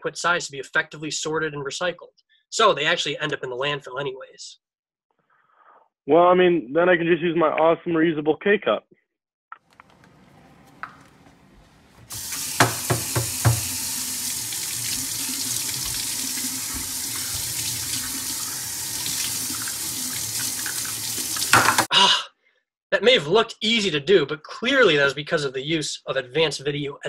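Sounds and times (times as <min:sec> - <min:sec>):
faucet running into steel sink: 0:12.1 - 0:21.9
pipe knocks: 0:12.5 - 0:13.8.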